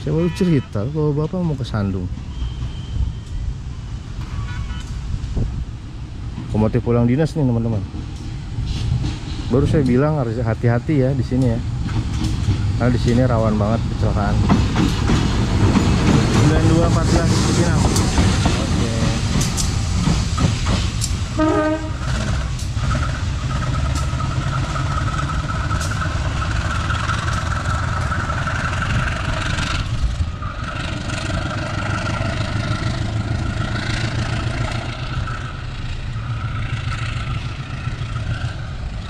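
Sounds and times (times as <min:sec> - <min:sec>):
locomotive engine drone: 0:00.0 - 0:39.0
wheels clacking over rail joints: 0:06.2 - 0:39.0.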